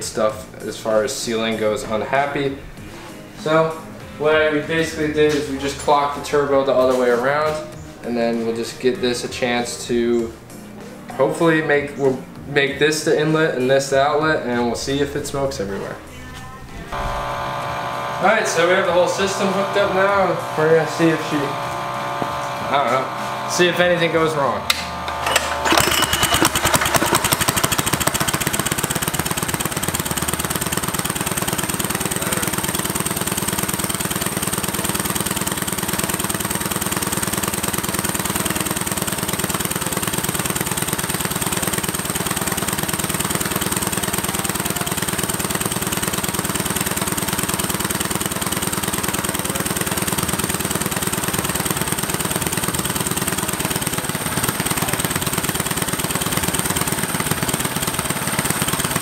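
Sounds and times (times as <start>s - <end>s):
small engine running: 16.9s - 59.0s.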